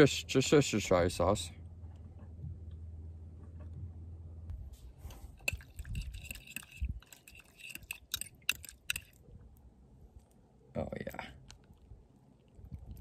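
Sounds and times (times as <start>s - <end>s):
spoon stirring thick sauce: 5.3s - 9.2s.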